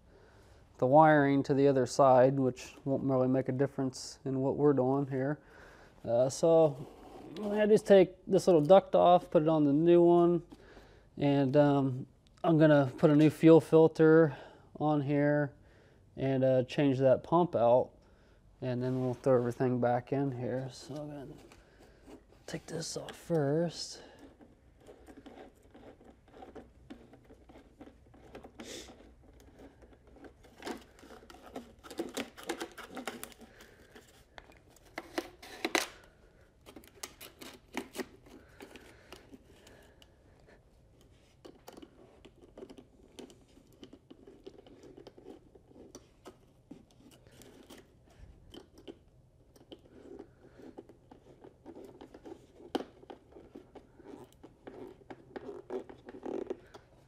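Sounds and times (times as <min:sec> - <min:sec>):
clicks scrapes and rustling: 0:19.0 - 0:57.0
hands taking apart heater: 0:20.6 - 0:40.2.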